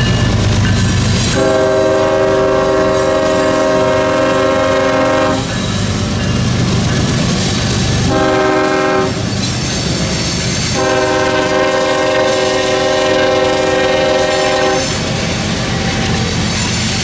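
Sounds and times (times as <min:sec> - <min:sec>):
train rumbling on tracks: 0:00.0 - 0:17.0
locomotive air horn: 0:01.3 - 0:05.6, 0:08.0 - 0:09.3, 0:10.7 - 0:15.1.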